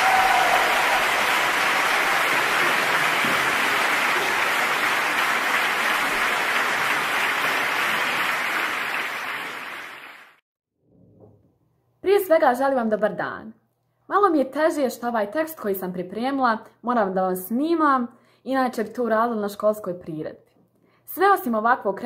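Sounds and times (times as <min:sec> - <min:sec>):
crowd applause: 0:00.0 - 0:10.4.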